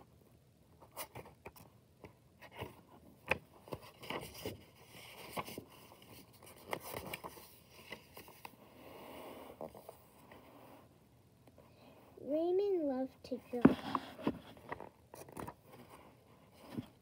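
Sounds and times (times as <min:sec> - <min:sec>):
book pages rustling: 0:00.8 - 0:08.7, 0:09.3 - 0:10.9, 0:13.5 - 0:17.0.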